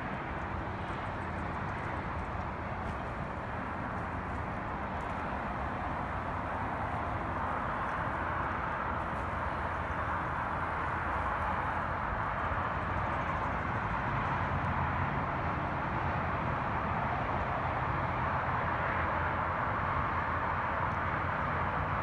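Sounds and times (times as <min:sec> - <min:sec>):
distant traffic rumble: 0:00.0 - 0:22.0.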